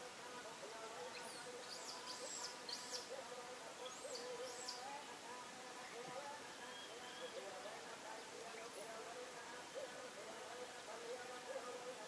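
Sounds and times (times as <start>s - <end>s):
high arching bird chirps: 1.1s - 3.1s, 3.9s - 4.9s.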